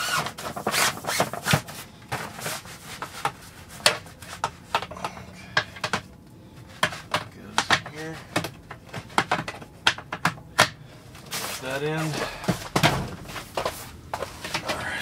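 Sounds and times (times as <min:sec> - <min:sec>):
fabric rubbing and scraping: 0:00.0 - 0:04.4.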